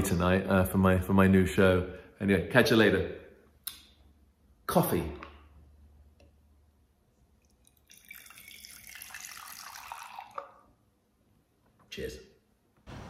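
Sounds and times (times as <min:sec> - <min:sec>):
liquid pouring into a glass: 0:07.4 - 0:10.7.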